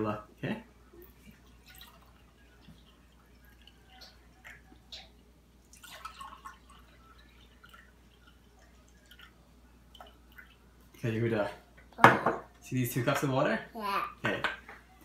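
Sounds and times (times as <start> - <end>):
water drips and splashes: 1.2 - 11.1
water pouring into glass: 1.3 - 10.6.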